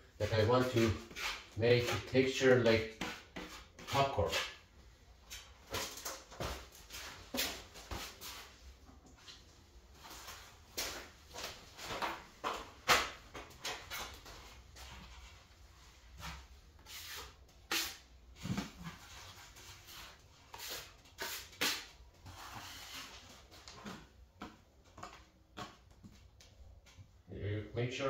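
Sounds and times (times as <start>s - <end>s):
putty knife scraping plaster: 0.2s - 4.6s, 16.3s - 18.1s, 19.8s - 23.2s.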